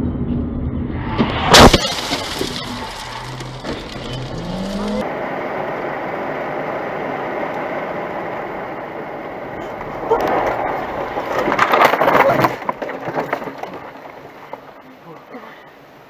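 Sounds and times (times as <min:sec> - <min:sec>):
cars crashing: 0:00.8 - 0:15.8
scraping and settling debris: 0:01.1 - 0:05.1, 0:09.2 - 0:15.3
road and engine noise inside car: 0:02.6 - 0:10.5.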